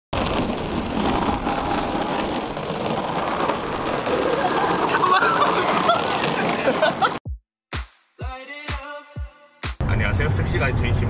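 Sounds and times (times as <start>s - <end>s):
longboard wheels rolling on pavement: 0.1s - 7.2s.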